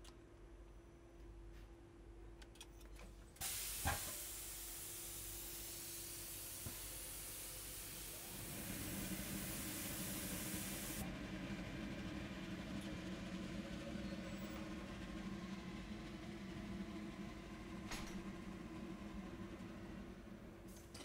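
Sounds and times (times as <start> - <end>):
steam hissing: 3.4 - 11.0.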